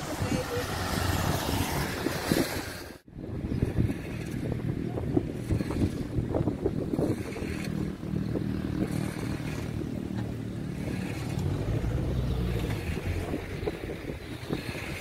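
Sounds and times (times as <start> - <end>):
wind rumbling on microphone: 0.0 - 15.0
car engine driving away: 7.0 - 14.9.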